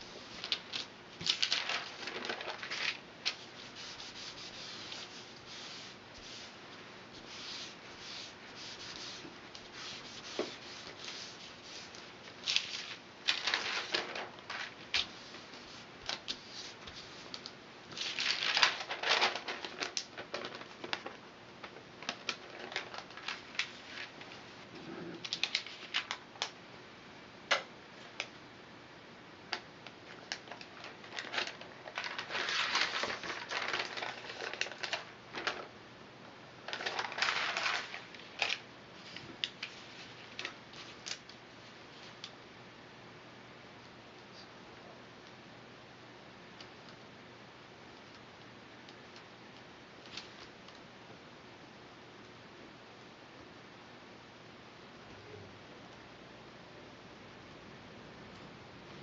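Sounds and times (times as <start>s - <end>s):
paper rustling: 0.0s - 6.6s, 7.2s - 24.5s, 25.2s - 26.2s, 30.1s - 35.7s, 36.6s - 41.3s.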